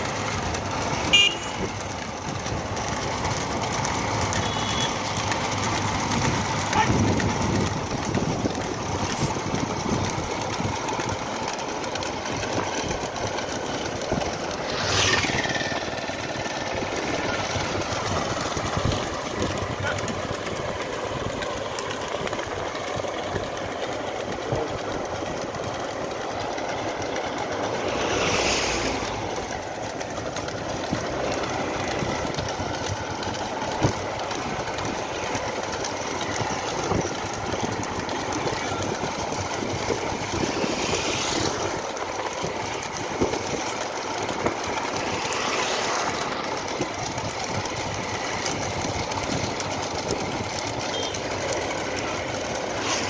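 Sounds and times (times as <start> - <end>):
vehicle rumbling on road: 0.0 - 53.0.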